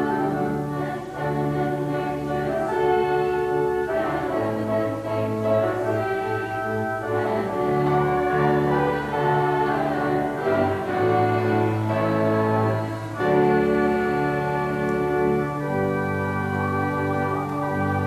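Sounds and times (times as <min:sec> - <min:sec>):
church organ playing: 0:00.0 - 0:18.0.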